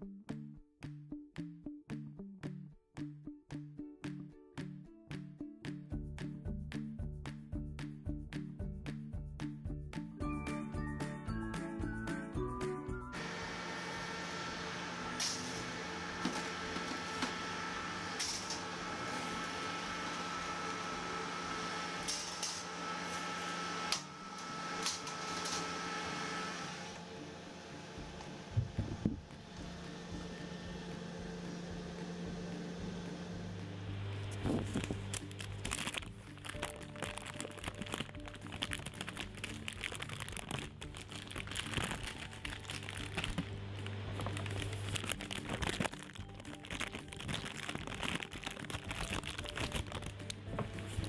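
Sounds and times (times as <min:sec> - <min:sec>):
bakery equipment hum: 0:13.1 - 0:51.0
parchment paper crinkling: 0:34.4 - 0:51.0.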